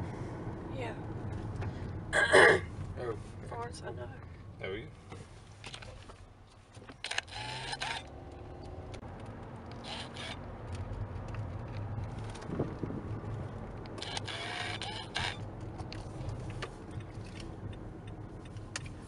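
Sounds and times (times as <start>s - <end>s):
car driving low rumble: 0.0s - 19.0s
handheld camera rustling: 9.8s - 12.7s.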